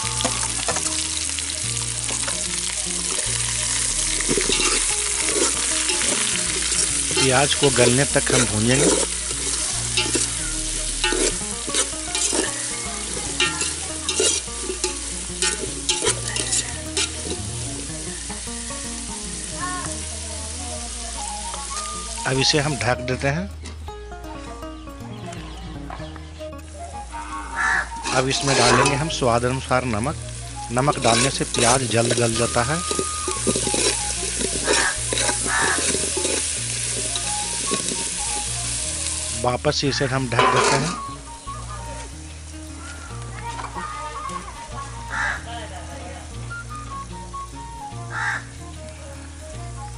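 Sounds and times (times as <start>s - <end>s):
onions sizzling in oil: 0.0s - 23.0s, 26.6s - 49.9s
spoon scraping a metal pot: 3.8s - 17.5s, 28.0s - 29.1s, 30.9s - 38.4s, 40.4s - 41.0s.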